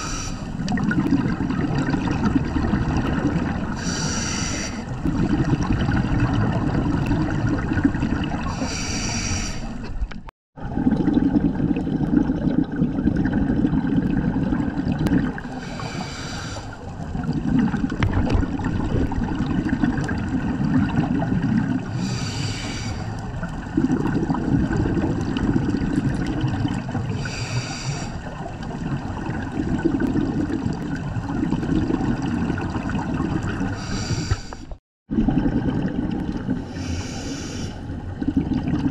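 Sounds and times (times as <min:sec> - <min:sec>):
regulator hissing inhale: 0:00.0 - 0:00.6, 0:03.8 - 0:04.9, 0:08.5 - 0:09.9, 0:15.5 - 0:16.8, 0:21.9 - 0:23.2, 0:27.2 - 0:28.3, 0:33.8 - 0:34.8, 0:36.6 - 0:37.8
bubbling exhale: 0:00.0 - 0:10.0, 0:10.6 - 0:18.0, 0:18.6 - 0:38.9.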